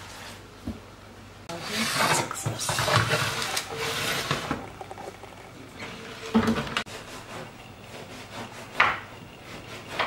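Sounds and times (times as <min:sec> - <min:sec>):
baking tray scraping in oven: 0:01.5 - 0:04.6.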